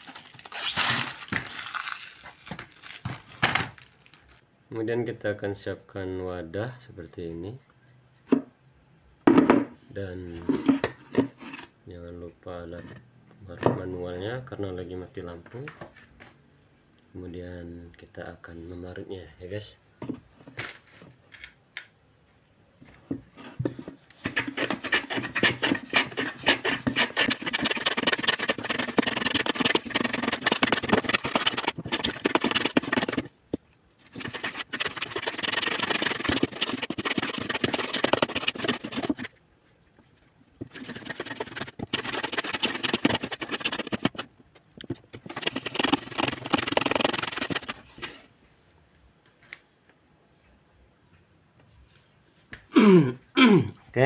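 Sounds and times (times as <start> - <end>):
frozen block scraped on grater: 24.2 - 33.3, 34.1 - 39.3, 40.6 - 44.3, 45.2 - 48.2.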